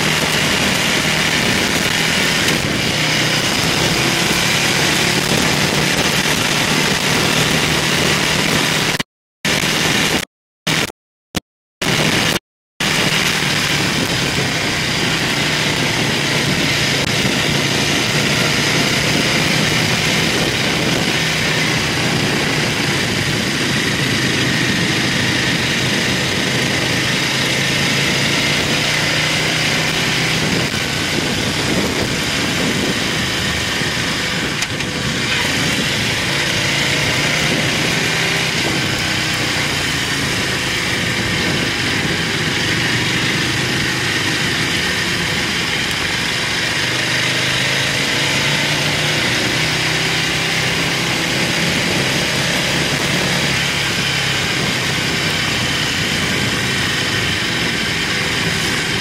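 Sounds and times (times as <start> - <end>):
motorcycle engine running: 0.0 - 11.0, 11.8 - 59.0
wind and road noise: 0.0 - 11.0, 11.8 - 59.0.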